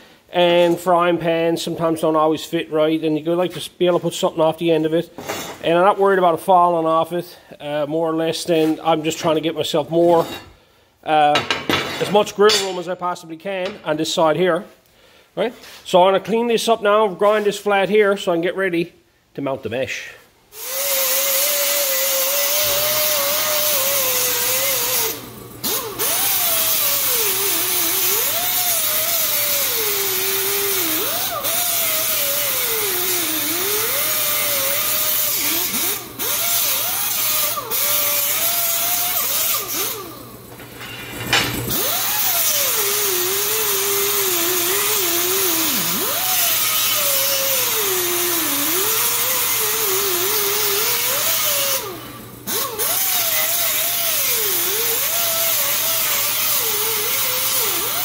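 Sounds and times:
angle grinder grinding steel: 0:20.5 - 0:58.0.

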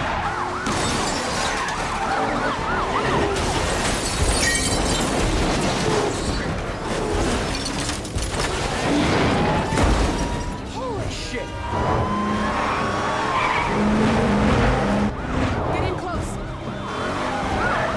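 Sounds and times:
police sirens wailing: 0:00.0 - 0:07.0, 0:09.1 - 0:17.9
car crash: 0:00.0 - 0:10.7
vehicle noise: 0:00.0 - 0:17.9.

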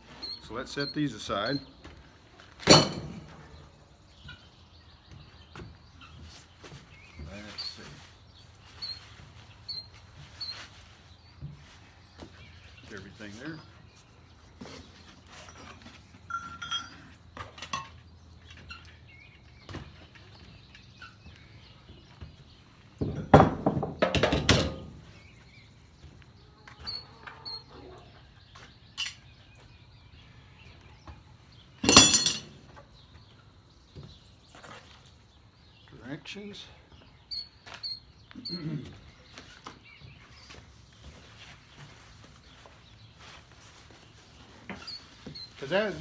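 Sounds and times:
metal clattering thunk: 0:02.6 - 0:03.3
sharp ringing metal clank: 0:31.8 - 0:32.5
metal parts clinking: 0:31.8 - 0:32.6.

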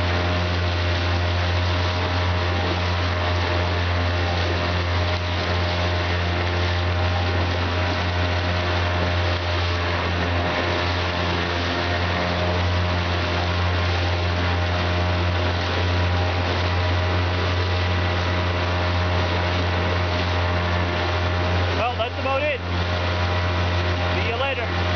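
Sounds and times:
outboard motor running: 0:00.0 - 0:24.9
water splashing along hull: 0:00.0 - 0:24.9.

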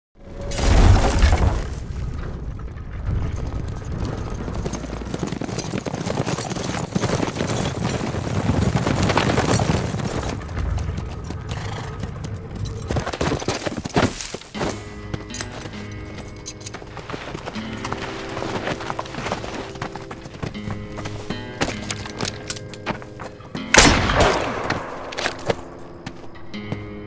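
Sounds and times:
horses galloping: 0:02.3 - 0:23.9
film score music: 0:14.4 - 0:27.0
revolver gunfire: 0:23.8 - 0:25.1.

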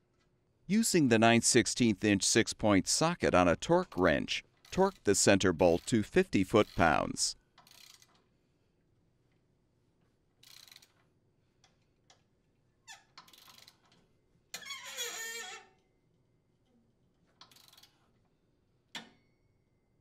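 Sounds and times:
ratchet wrench clicking: 0:07.6 - 0:08.2, 0:10.4 - 0:11.0, 0:13.2 - 0:13.9, 0:17.4 - 0:18.0.

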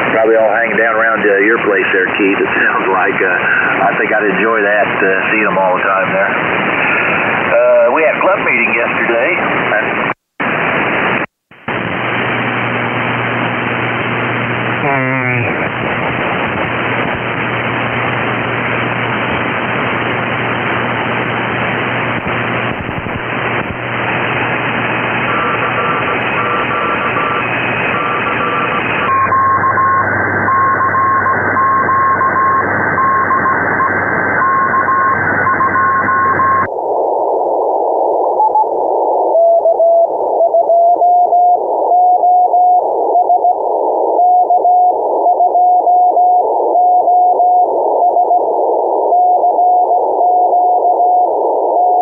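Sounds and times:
radio band-noise hiss: 0:00.0 - 0:52.0
morse code beeping: 0:25.3 - 0:36.7.

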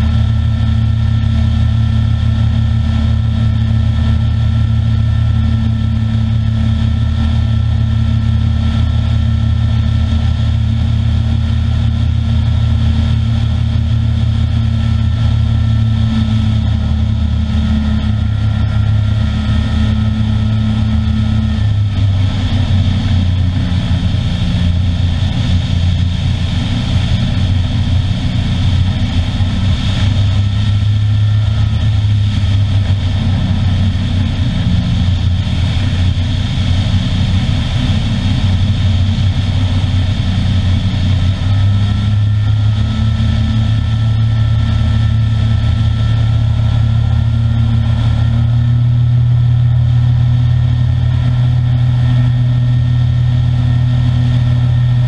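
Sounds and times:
light aircraft engine droning: 0:00.0 - 0:55.0.

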